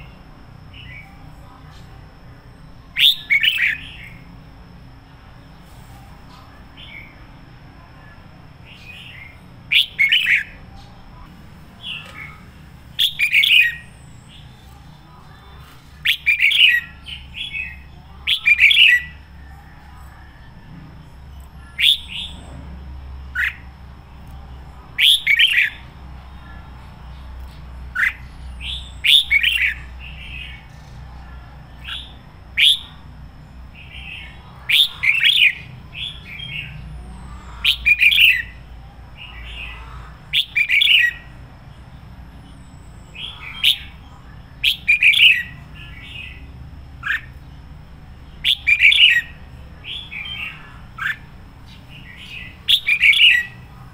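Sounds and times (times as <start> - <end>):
bird singing whistled phrases: 3.0 - 4.2, 9.7 - 10.5, 21.7 - 22.4, 31.8 - 33.0, 40.3 - 41.3, 48.4 - 51.2.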